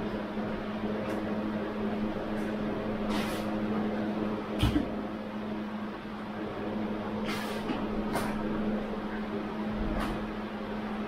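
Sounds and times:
room hum: 0.0s - 11.0s.

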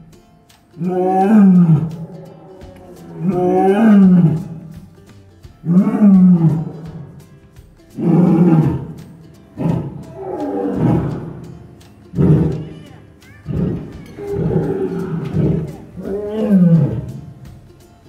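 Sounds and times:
lioness roaring: 0.8s - 4.7s, 5.6s - 7.1s, 8.0s - 9.0s, 9.6s - 11.4s, 12.1s - 12.7s, 13.5s - 17.3s.

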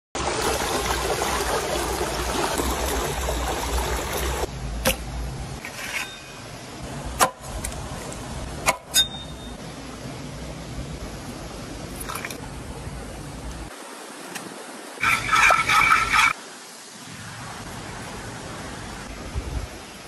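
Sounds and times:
stream rushing over rocks: 0.2s - 4.5s, 11.9s - 20.0s.

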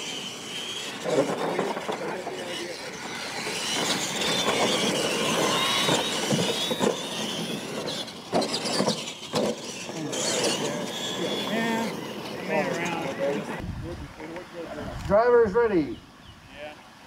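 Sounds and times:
toy truck motors whining: 0.0s - 13.6s
tyres on dirt: 0.0s - 13.6s.

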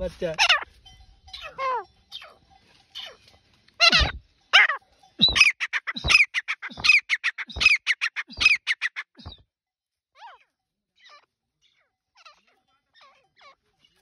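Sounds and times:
bird calling harshly: 0.3s - 9.4s.

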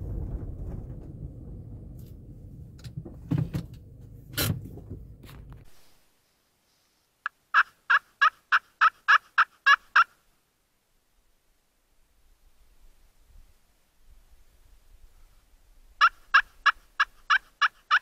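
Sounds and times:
wind rumble on microphone: 0.0s - 5.8s
turkey yelping: 7.5s - 10.2s, 16.0s - 18.0s.

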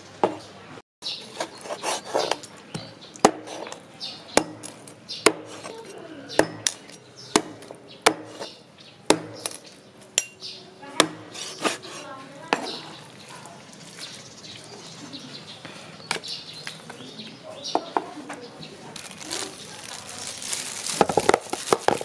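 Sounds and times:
cleaver chopping through bone: 1.4s - 10.4s, 11.0s - 12.0s.

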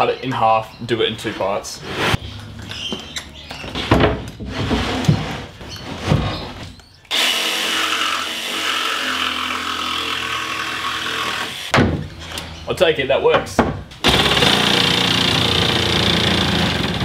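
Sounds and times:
plywood knocking and scraping: 2.8s - 6.8s
jigsaw cutting plywood: 7.1s - 11.7s, 14.0s - 17.0s.

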